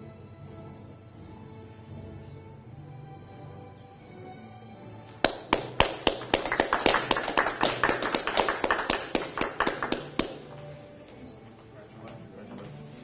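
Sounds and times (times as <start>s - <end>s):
people clapping: 5.2s - 10.7s.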